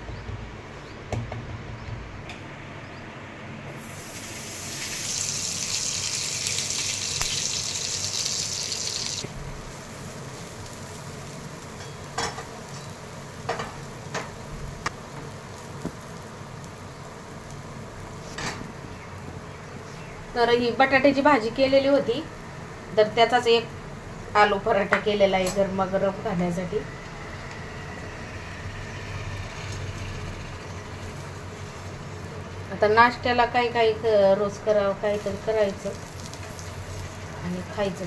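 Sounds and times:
butter sizzling on a griddle: 3.7s - 19.0s, 34.6s - 38.0s.

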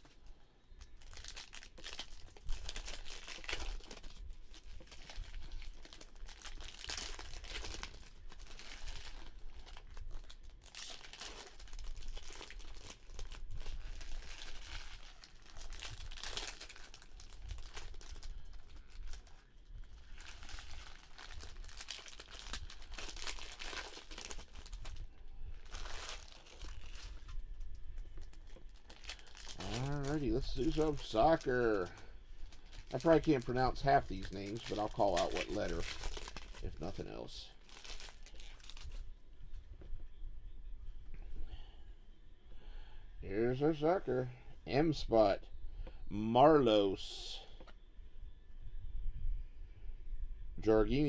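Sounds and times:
foil wrappers crinkling and tearing: 0.0s - 39.2s.

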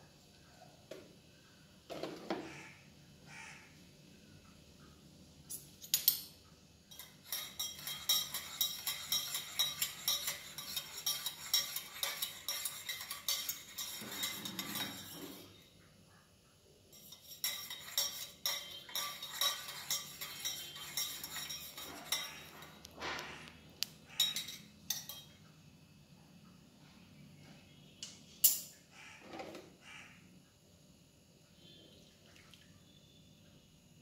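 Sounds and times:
metal spoon clinking in tumbler: 5.5s - 15.6s, 16.9s - 22.9s, 24.1s - 25.4s.

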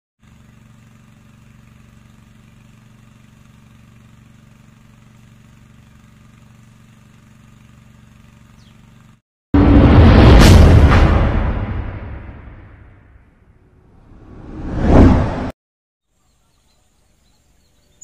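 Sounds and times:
low mechanical hum: 0.2s - 9.2s.

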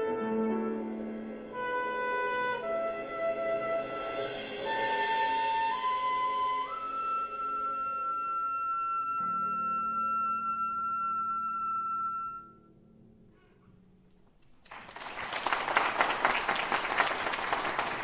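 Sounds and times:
audience applauding: 14.5s - 18.0s.

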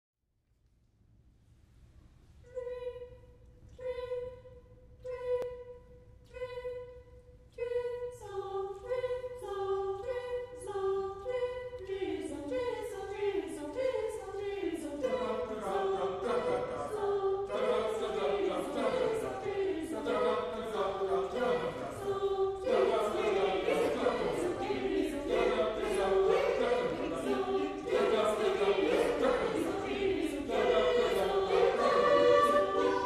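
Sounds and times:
choir singing short detached notes: 7.6s - 33.0s.

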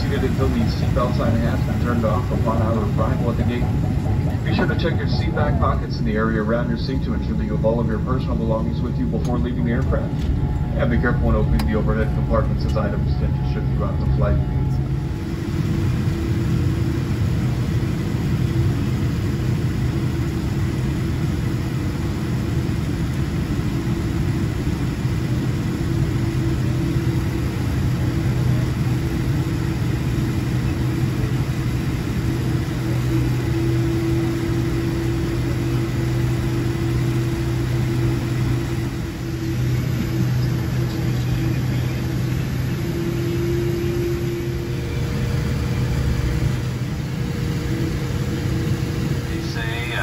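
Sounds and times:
higher steady tone: 0.0s - 18.0s, 32.8s - 50.0s
aircraft engines droning: 0.0s - 50.0s
low hum: 0.0s - 50.0s.

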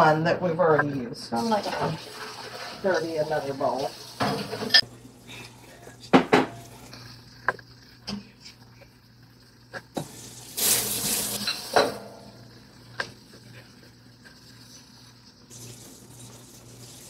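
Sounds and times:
tap water rushing: 1.5s - 4.8s, 6.1s - 8.2s, 9.7s - 17.0s.

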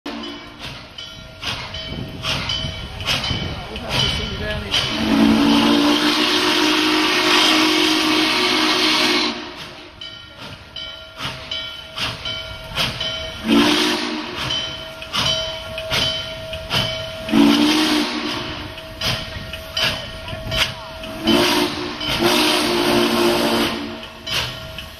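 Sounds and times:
locomotive bell ringing: 0.1s - 7.8s, 8.6s - 24.9s
steam whistle blast: 4.9s - 9.7s, 13.4s - 14.4s, 17.3s - 18.6s, 21.1s - 24.0s.

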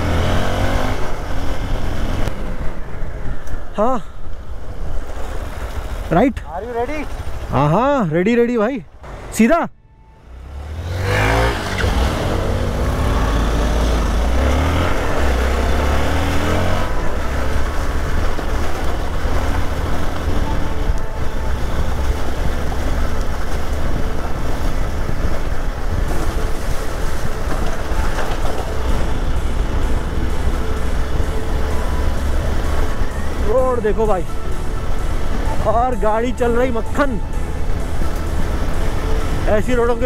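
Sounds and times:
motorcycle engine pulling away: 0.0s - 2.3s, 10.2s - 34.0s
wind rumble on microphone: 10.7s - 40.0s.

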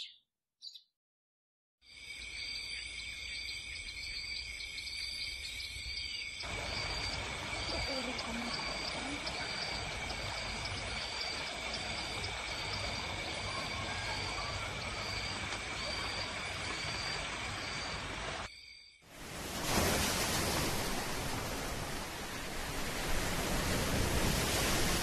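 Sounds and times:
high-pitched insect drone: 2.0s - 19.0s.

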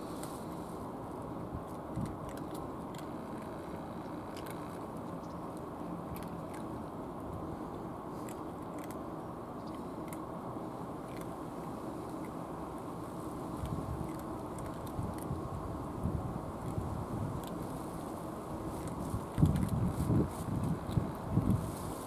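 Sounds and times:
cats crunching dry food: 0.0s - 22.0s
low background rumble: 0.0s - 22.0s.

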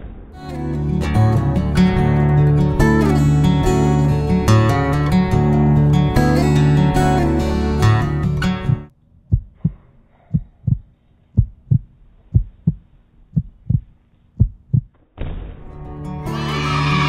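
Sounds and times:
acoustic guitar music: 0.4s - 8.9s, 15.6s - 17.0s
heartbeat thumps: 8.7s - 14.9s.

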